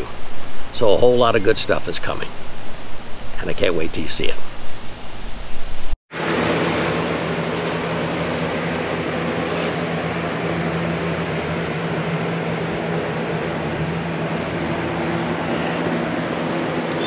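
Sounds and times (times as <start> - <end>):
fans rushing air: 0.0 - 17.0
low motor hum: 4.5 - 17.0.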